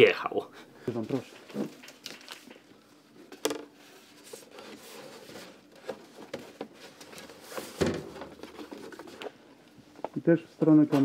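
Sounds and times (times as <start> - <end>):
paper and cardboard rustling: 3.2 - 9.4.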